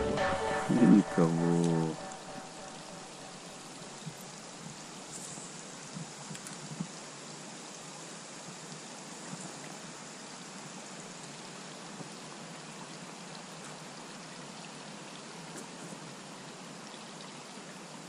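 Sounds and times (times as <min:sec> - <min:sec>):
hiss of water: 0:03.0 - 0:18.0
faint dripping ticks: 0:03.9 - 0:18.0.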